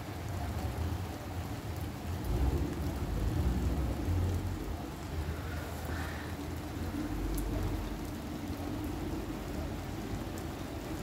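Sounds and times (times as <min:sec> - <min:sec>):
steady rain falling: 0:00.0 - 0:11.0
low rumble of thunder: 0:02.1 - 0:09.5.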